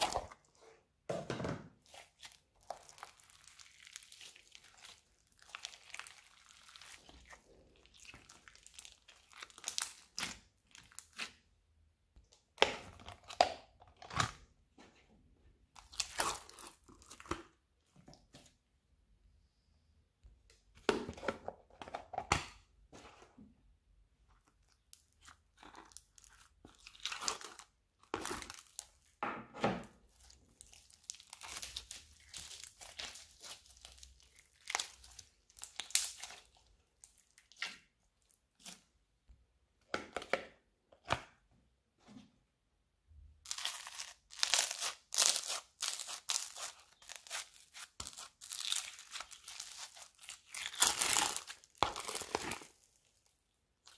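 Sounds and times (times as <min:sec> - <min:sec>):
slime crackling and popping: 0:01.9 - 0:11.4, 0:30.2 - 0:37.8, 0:43.5 - 0:53.9.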